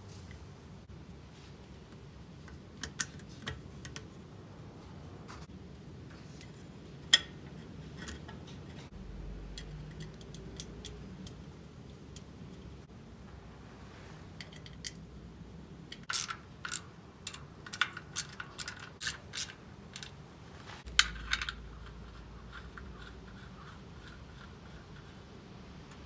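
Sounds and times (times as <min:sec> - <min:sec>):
wrench clicking on metal nuts: 0:15.9 - 0:20.2.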